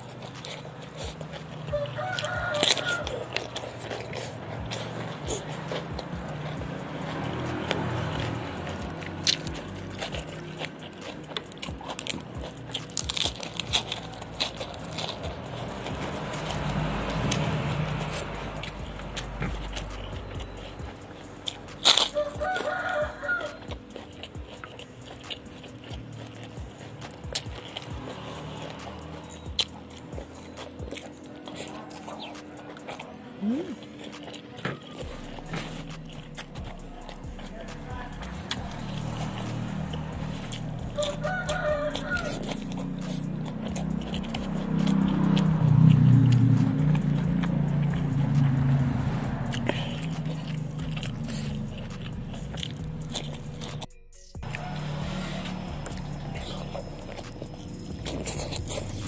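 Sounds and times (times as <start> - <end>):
chewing and lip smacking: 0.0 - 59.0
rooster crowing: 1.6 - 3.7, 22.0 - 23.8, 39.4 - 42.7, 54.4 - 57.2
chicken calling: 1.7 - 3.4, 22.1 - 23.7, 40.9 - 42.5
low rumble: 35.0 - 59.0.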